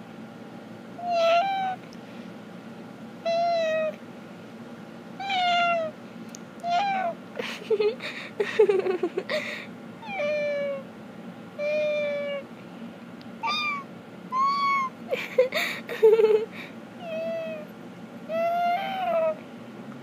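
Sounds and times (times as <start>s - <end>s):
cat meowing: 1.0s - 1.8s, 5.2s - 5.9s, 6.6s - 7.2s, 13.4s - 14.9s, 18.3s - 19.4s
rough wavering cat call: 1.0s - 1.8s, 13.4s - 15.0s, 18.3s - 19.4s.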